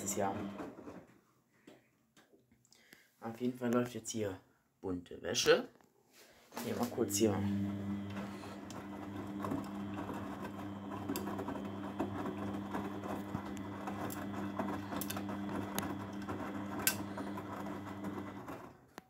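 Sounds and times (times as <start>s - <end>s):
washing machine motor hum: 0.0s - 1.0s, 6.6s - 18.8s.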